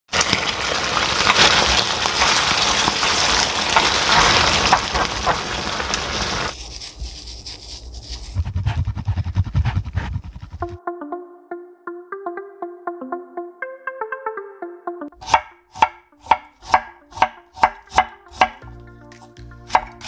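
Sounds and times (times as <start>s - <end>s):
food sizzling in a pan: 0.1s - 6.5s.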